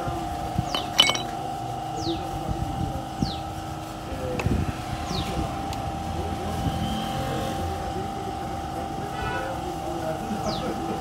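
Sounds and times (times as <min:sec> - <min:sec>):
metal parts knocking and clicking: 0:00.7 - 0:01.3.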